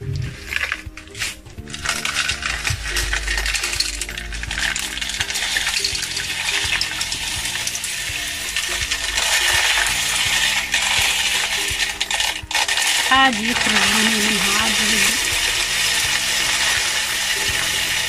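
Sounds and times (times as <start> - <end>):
salt granules pouring: 0.0 - 18.0.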